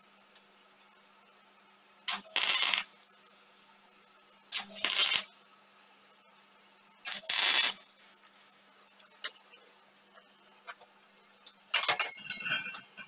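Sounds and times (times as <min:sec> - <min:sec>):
welding arc sizzle: 0:02.0 - 0:03.7, 0:04.5 - 0:05.4, 0:07.0 - 0:09.7.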